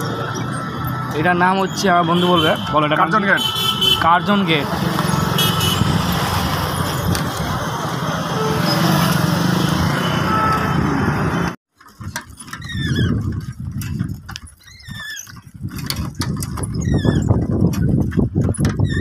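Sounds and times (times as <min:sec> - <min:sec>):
scooter and motorbike engines: 0:00.0 - 0:11.6
road noise: 0:00.0 - 0:18.9
short high squeaks: 0:12.4 - 0:13.2, 0:14.4 - 0:15.4, 0:16.6 - 0:17.4, 0:18.8 - 0:19.0.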